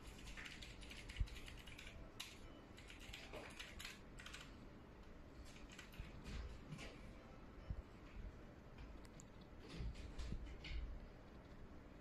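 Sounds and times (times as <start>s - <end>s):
faint clicking and tapping: 8.0s - 12.0s.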